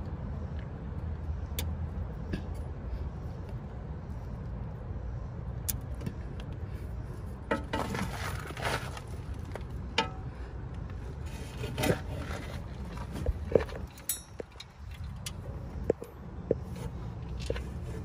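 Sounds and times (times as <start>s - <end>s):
low outdoor rumble: 0.0s - 18.0s
rustling and scraping: 7.1s - 10.1s, 10.8s - 18.0s.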